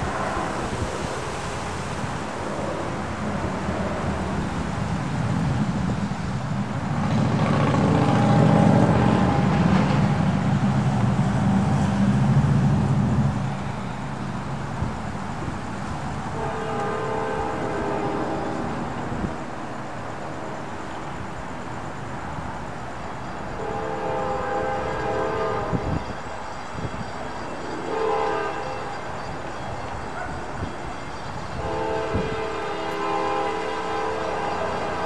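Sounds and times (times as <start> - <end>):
vehicle passing by rumbling: 6.9 - 13.4.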